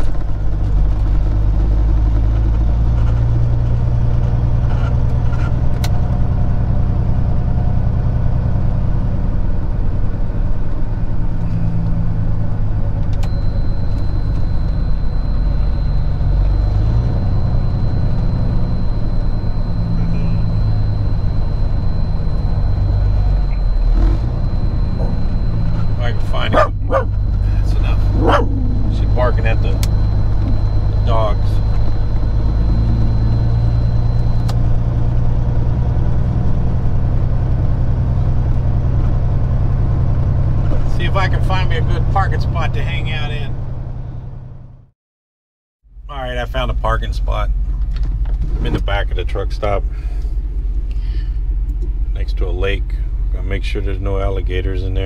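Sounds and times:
diesel truck engine running: 0.0s - 44.9s, 45.8s - 55.0s
faint high whine: 13.1s - 36.1s.

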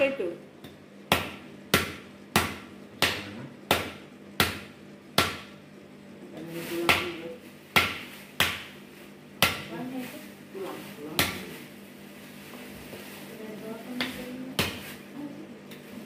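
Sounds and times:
knife chopping bone on wood: 0.6s - 5.6s, 7.7s - 8.8s, 9.4s - 9.7s.

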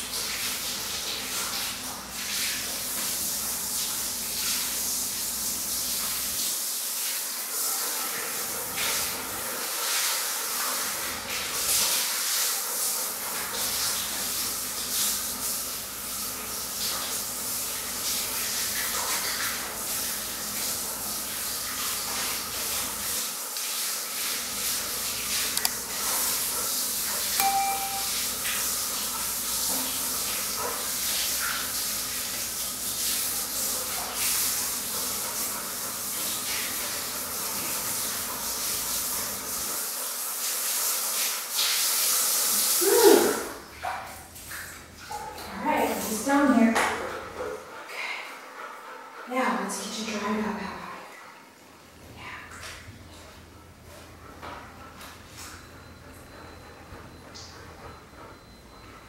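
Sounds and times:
shower head spraying water: 23.7s - 26.4s, 27.3s - 28.7s.

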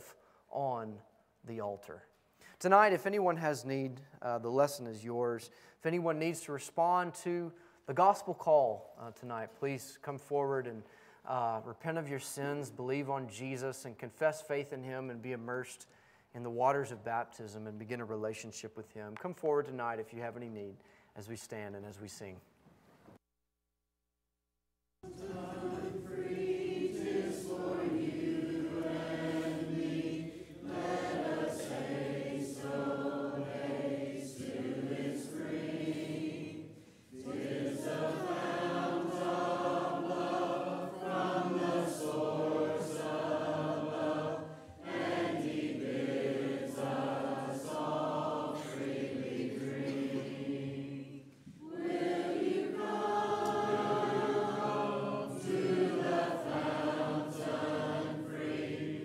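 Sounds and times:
congregation singing a hymn a cappella: 25.0s - 59.0s.

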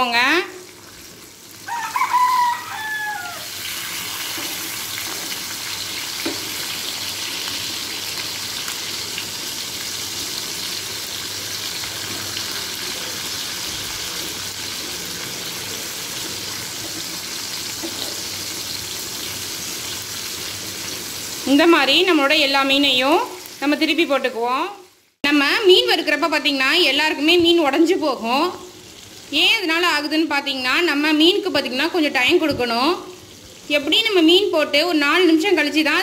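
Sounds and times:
fish sizzling in hot oil: 0.5s - 24.1s, 28.2s - 30.1s
rooster crowing: 1.6s - 3.6s.

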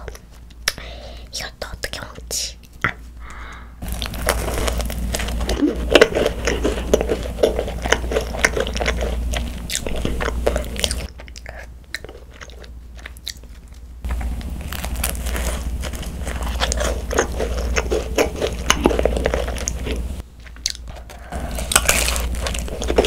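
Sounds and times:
crunchy chewing: 3.8s - 23.0s.

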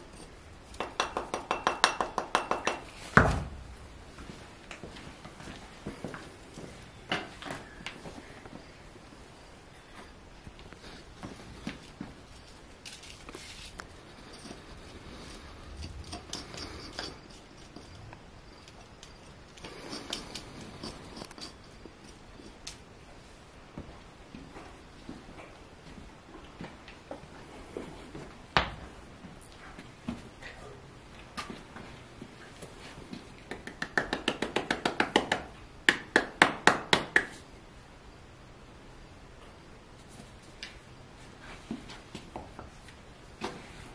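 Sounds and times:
hand slapping hoof: 33.4s - 37.4s
hand tapping hoof: 33.5s - 37.4s.

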